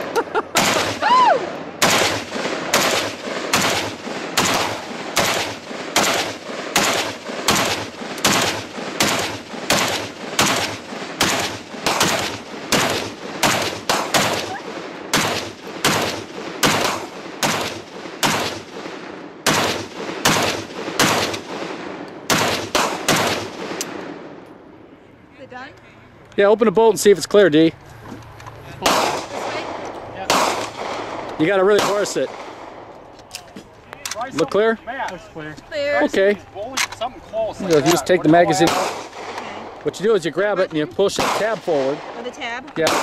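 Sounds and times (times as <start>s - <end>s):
pistol single shots: 1.8s - 24.2s, 28.8s - 32.8s, 37.7s - 39.4s, 41.1s - 43.0s.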